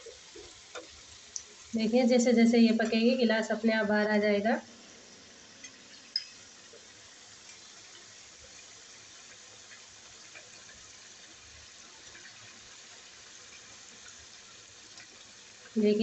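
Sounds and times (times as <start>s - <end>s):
oil sizzling and bubbling: 0.0s - 16.0s
small crackles: 5.5s - 15.8s.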